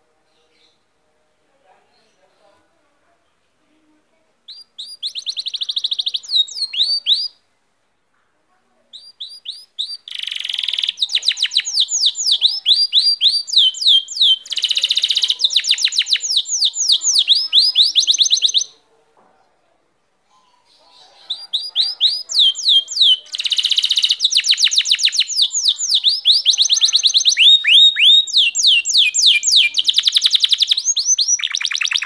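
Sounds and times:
canary singing trills: 4.5 - 7.4, 8.9 - 18.8, 20.3 - 32.0.

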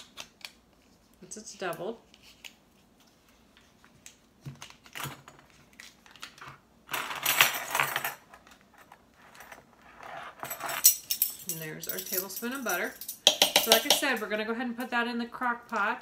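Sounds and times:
kitchen clicks and taps: 13.2 - 14.2.

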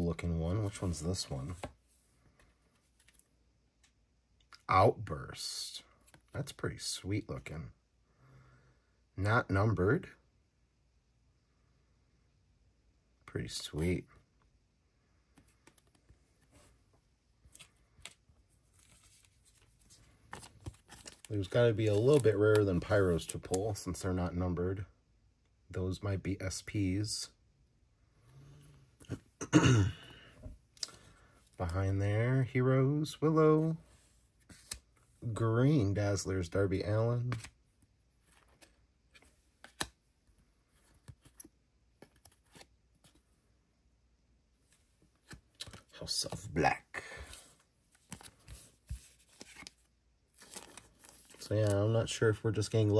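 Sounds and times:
trading card rustling in fingers: 17.4 - 23.5, 47.3 - 51.9.

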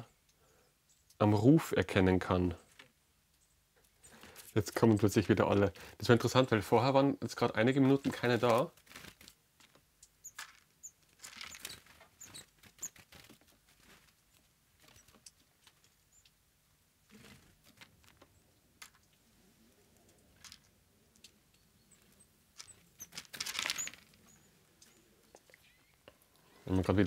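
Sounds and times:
birds scratching and pecking: 3.8 - 5.3, 7.8 - 16.4, 17.0 - 27.0
tiny high bird calls: 10.0 - 13.0, 21.2 - 26.1.

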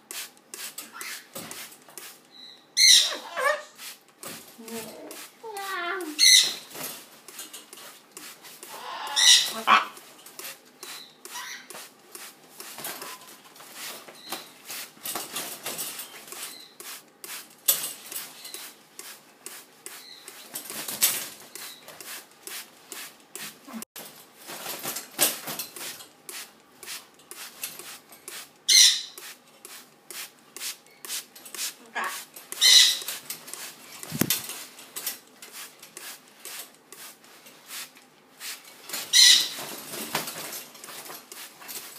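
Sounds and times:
feathers brushing curtain: 11.7 - 23.9, 29.2 - 41.9.

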